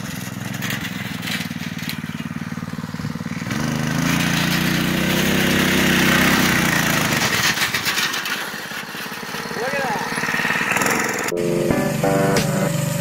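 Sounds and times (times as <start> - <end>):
go-kart engine passing: 0.0 - 13.0.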